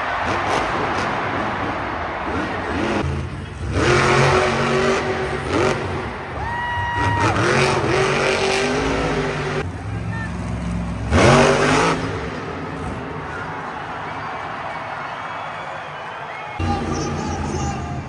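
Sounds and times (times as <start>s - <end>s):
truck engine revving: 0.0s - 6.4s, 7.0s - 13.9s
arena noise: 0.0s - 18.0s.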